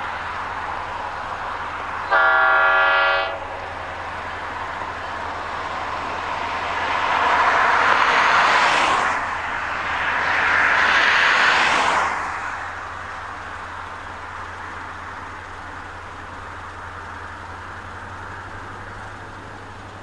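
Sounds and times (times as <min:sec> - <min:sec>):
cars passing on road: 0:00.0 - 0:20.0
diesel locomotive horn: 0:02.0 - 0:03.8.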